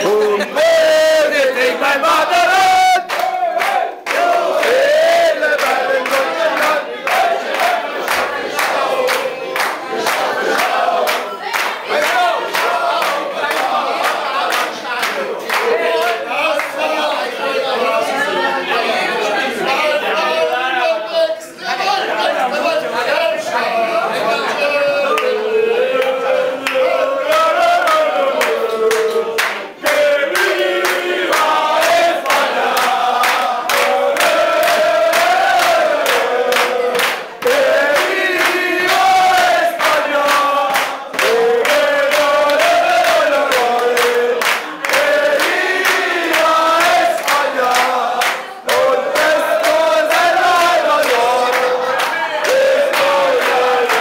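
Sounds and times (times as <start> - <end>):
men chanting together: 0.0 - 21.1, 22.0 - 54.0
hands clapping in time: 2.9 - 4.8, 26.0 - 54.0.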